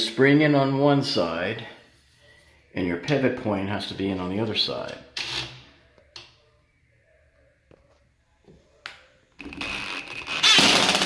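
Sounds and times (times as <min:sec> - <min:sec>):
impact driver driving screw: 0:09.4 - 0:11.0.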